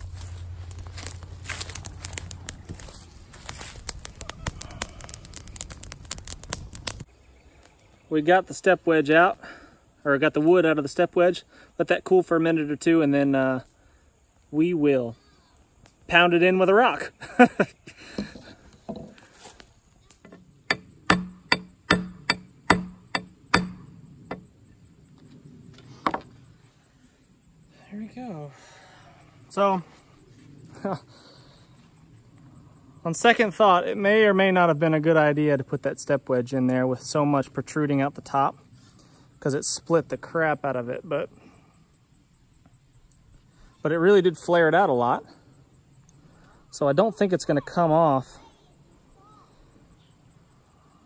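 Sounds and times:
twig fire crackling and popping: 0.0s - 10.1s, 15.5s - 25.9s, 41.4s - 43.8s
rock knocking metal wedge: 20.2s - 24.5s.

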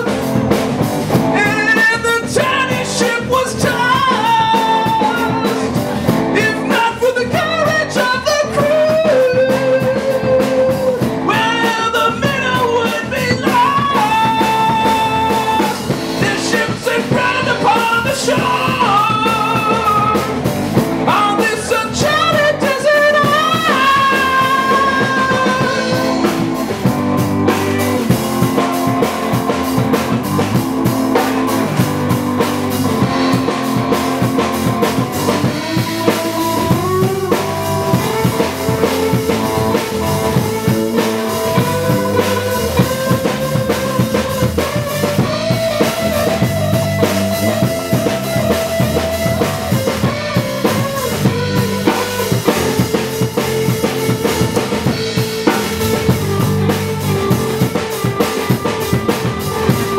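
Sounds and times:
drum kit beat: 0.0s - 59.9s
electric bass: 0.0s - 59.9s
electric guitar: 0.0s - 59.9s
held melody notes: 22.2s - 59.9s.

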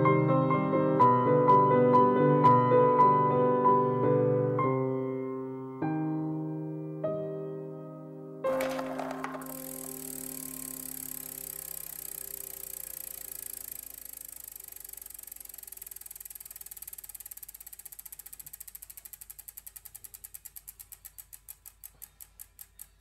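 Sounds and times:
ratchet-like mechanical ticking: 8.7s - 23.0s.

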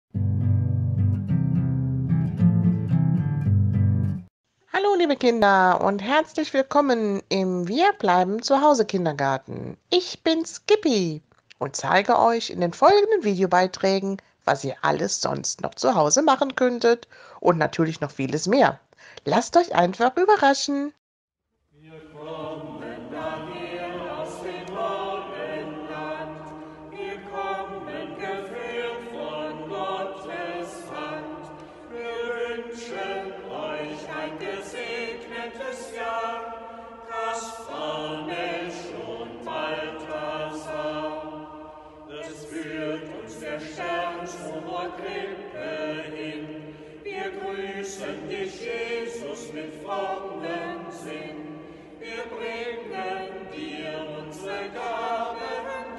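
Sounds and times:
group of people singing: 21.8s - 55.9s.

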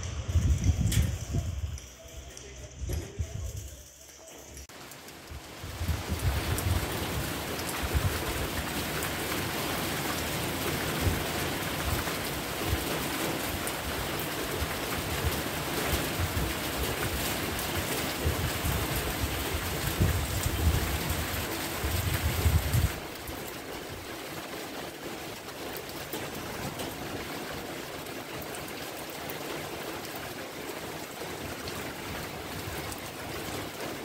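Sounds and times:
wind buffeting microphone: 0.0s - 2.0s, 5.3s - 8.6s, 15.0s - 23.0s
steady rain falling: 0.0s - 34.0s.

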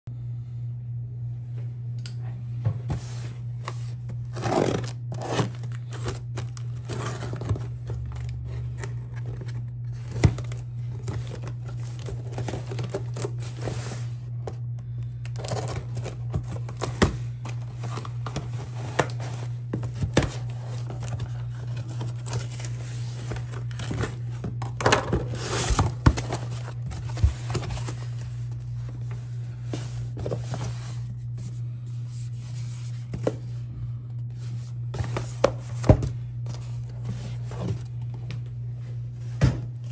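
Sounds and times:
cardboard flaps crinkling: 2.9s - 14.3s, 15.3s - 33.5s
packing tape tearing: 4.3s - 14.0s, 15.3s - 17.2s.

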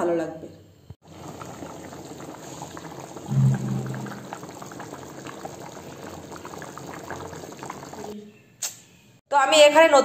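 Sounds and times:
curry bubbling in a pan: 1.0s - 8.2s
short low hum: 3.3s - 4.4s.

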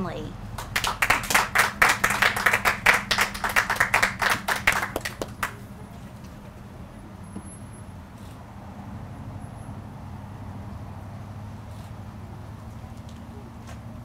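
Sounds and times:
people clapping: 0.6s - 5.7s.

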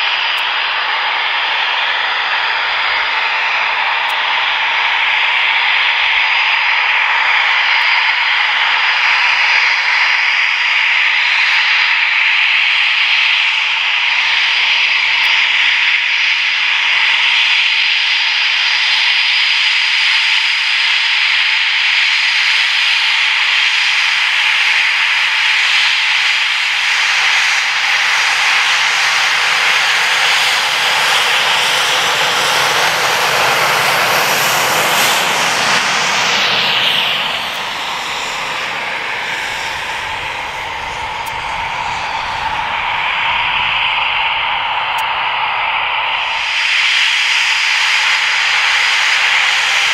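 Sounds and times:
jet engines howling: 0.0s - 49.9s.

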